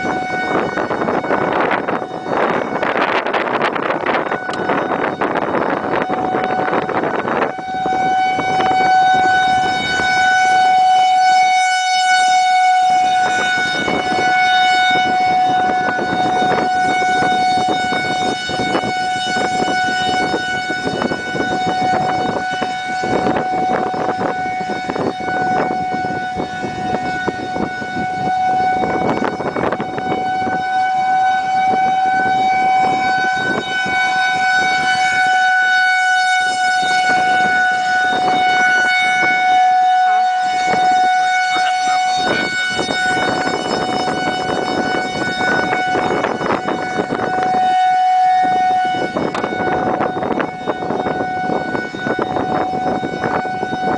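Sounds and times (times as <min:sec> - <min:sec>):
gusty wind: 0:00.0 - 0:53.9
warning siren: 0:00.0 - 0:53.9.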